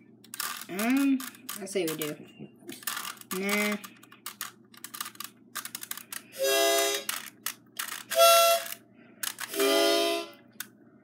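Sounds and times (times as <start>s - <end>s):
harmonica chords: 6.3s - 7.1s, 8.0s - 8.8s, 9.5s - 10.5s.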